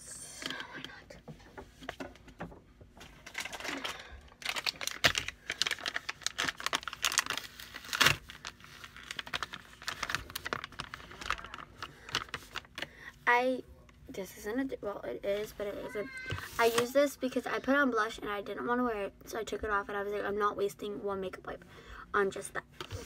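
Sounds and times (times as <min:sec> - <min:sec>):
plastic packet crinkling: 0:03.2 - 0:12.9.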